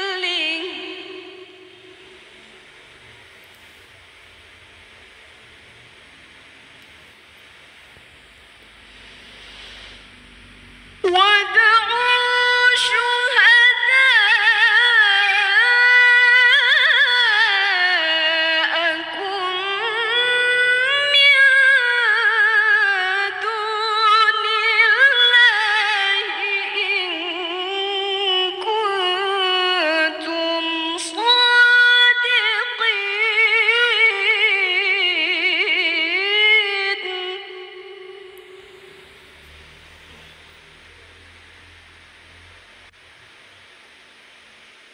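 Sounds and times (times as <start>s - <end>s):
woman reciting melodically: 0.0s - 2.1s, 11.0s - 38.7s.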